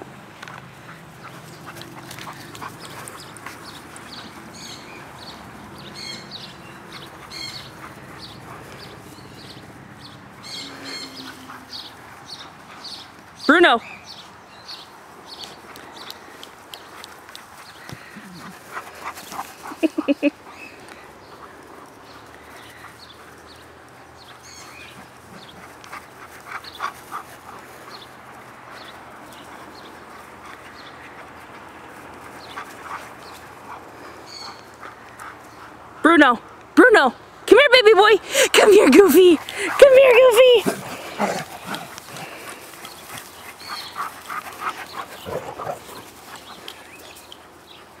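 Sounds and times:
dogs panting: 0.4 - 13.4, 14.1 - 36.7, 38.2 - 48.0
dog vocal sound: 38.8 - 46.7.

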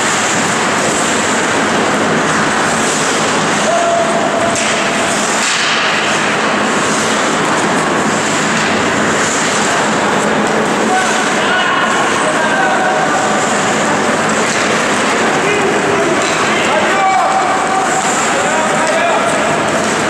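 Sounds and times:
ice rink rushing ambience: 0.0 - 20.0.

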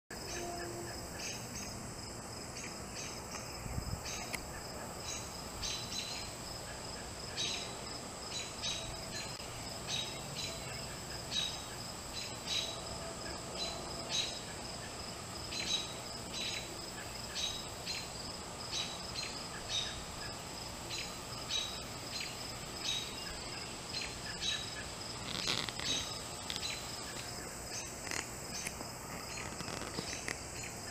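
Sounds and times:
high-pitched insect drone: 0.1 - 30.9
short insect chirps: 13.6 - 30.9.

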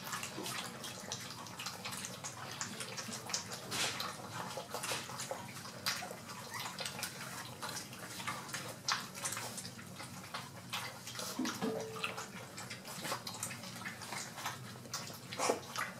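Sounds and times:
puppies lapping and smacking: 0.0 - 15.9.

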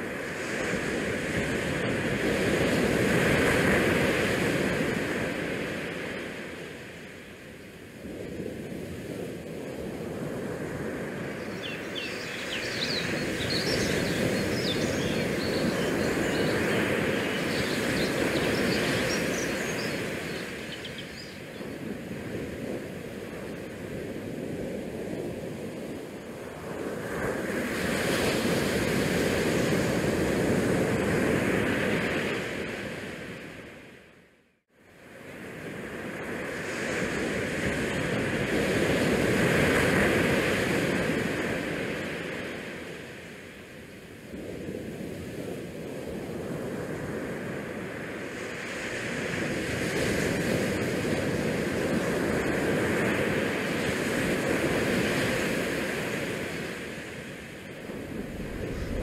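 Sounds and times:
wind on microphone: 8.0 - 32.6, 44.3 - 59.0.

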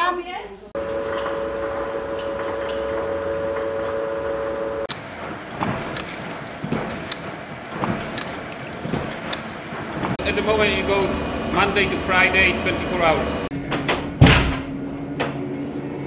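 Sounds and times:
machinery humming: 0.8 - 13.6
machine clicks and knocks: 4.9 - 10.2.

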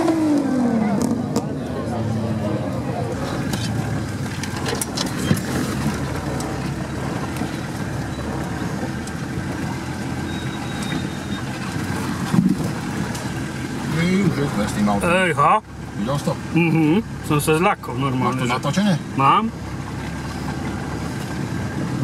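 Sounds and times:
vehicle engine running: 0.0 - 22.0
vehicle jolting knocks: 3.2 - 13.8.

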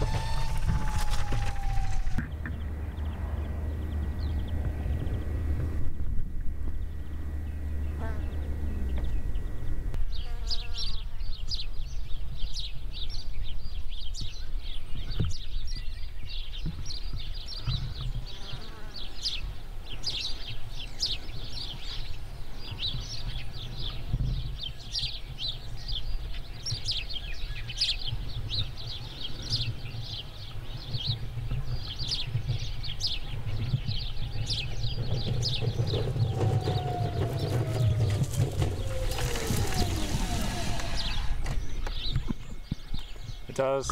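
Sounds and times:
whine sliding down in pitch: 0.0 - 3.4, 35.0 - 42.0
low rumble: 31.0 - 42.9.

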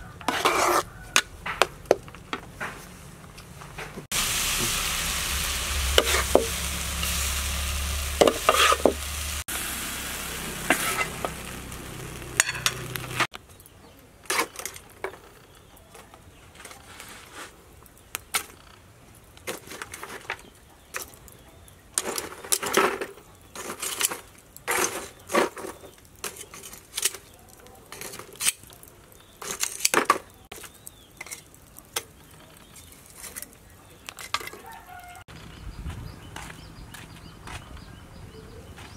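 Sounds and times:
spatula scraping in a wok: 0.0 - 1.3, 4.1 - 13.3
food sizzling: 4.1 - 13.3.

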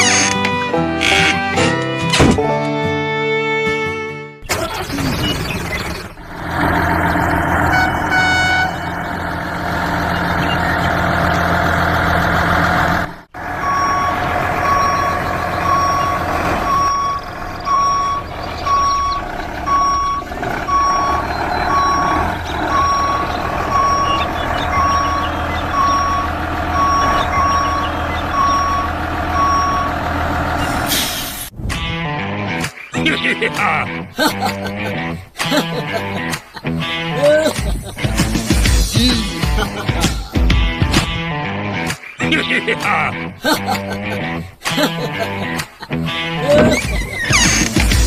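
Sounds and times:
truck engine running: 4.5 - 31.5, 46.0 - 48.0
reversing alarm beeping: 13.5 - 30.9.

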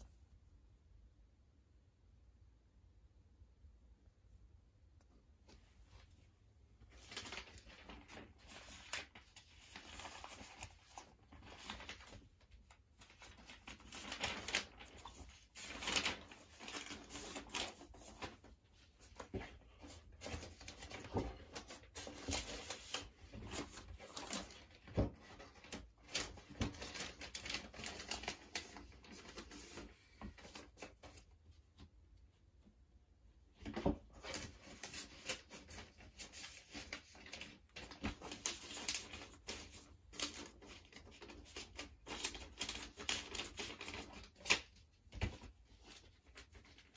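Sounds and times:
paper sleeve rustling and scraping: 6.8 - 31.3, 33.6 - 46.9.

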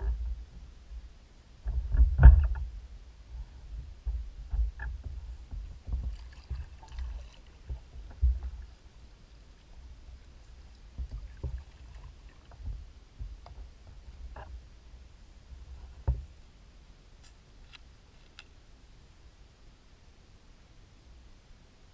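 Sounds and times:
water slapping kayak hull: 3.8 - 14.8.

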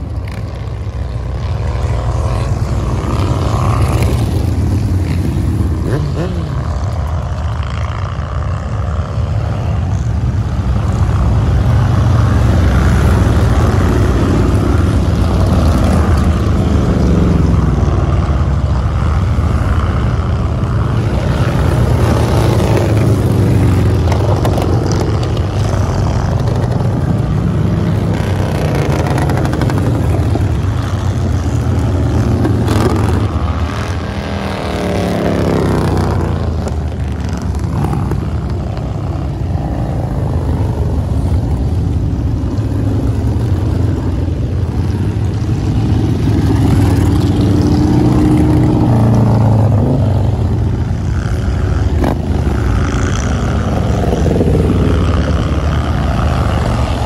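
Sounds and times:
motorcycles riding past: 0.0 - 57.0.

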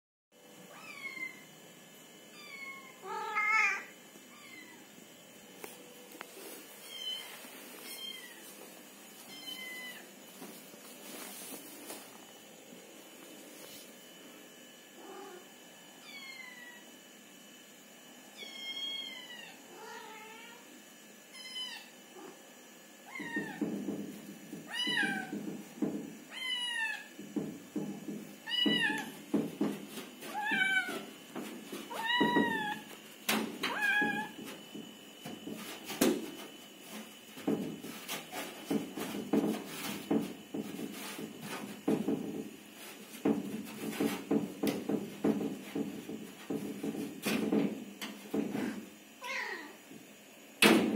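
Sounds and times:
cat meowing: 2.4 - 4.8
scuffling with light thumps: 5.6 - 12.4.

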